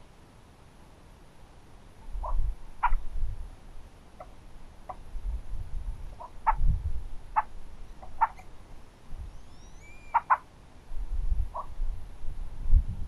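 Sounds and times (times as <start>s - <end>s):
short clipped animal calls: 2.2s - 3.0s, 6.2s - 6.6s, 7.4s - 8.5s, 9.4s - 10.5s, 11.5s - 11.7s
thin high whistle: 9.3s - 10.1s.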